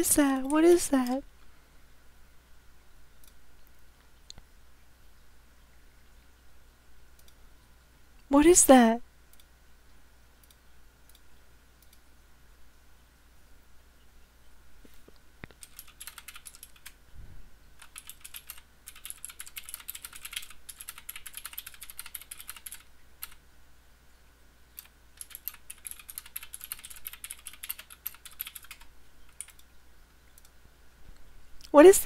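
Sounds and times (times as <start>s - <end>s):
typing on computer keyboard: 15.5s - 17.0s, 17.8s - 23.4s, 24.8s - 29.7s.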